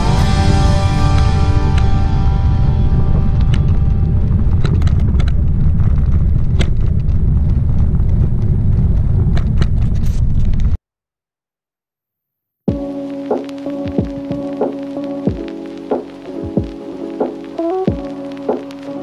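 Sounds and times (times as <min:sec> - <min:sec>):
wind buffeting microphone: 0:00.0 - 0:10.8
bicycle tyres on rough asphalt: 0:03.4 - 0:10.8
sharp clicks and rattles: 0:03.4 - 0:10.8.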